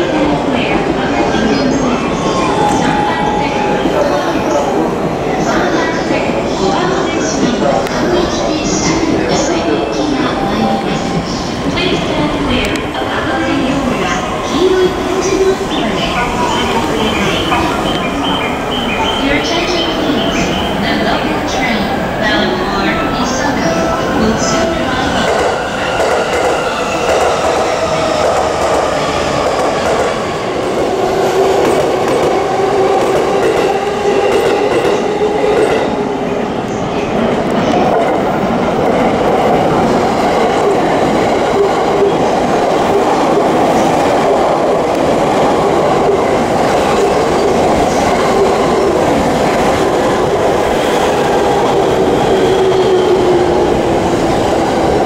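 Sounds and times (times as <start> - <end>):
train wheels on rails: 0.0 - 55.0.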